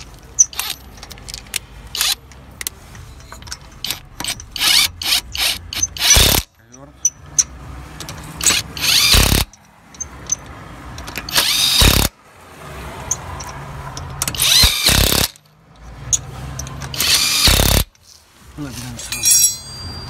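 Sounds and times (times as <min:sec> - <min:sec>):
impact wrench hammering: 0:03.8 - 0:07.6, 0:08.4 - 0:10.4, 0:11.0 - 0:12.1, 0:13.4 - 0:15.4, 0:16.6 - 0:17.9.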